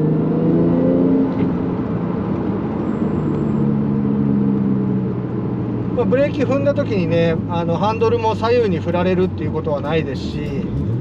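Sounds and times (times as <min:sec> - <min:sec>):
car engine accelerating: 0:00.0 - 0:11.0
road rumble: 0:00.0 - 0:11.0.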